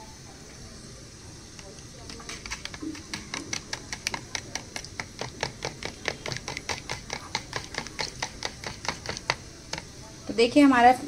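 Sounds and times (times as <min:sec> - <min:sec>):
utensil clicking against bowl: 0:01.6 - 0:09.9.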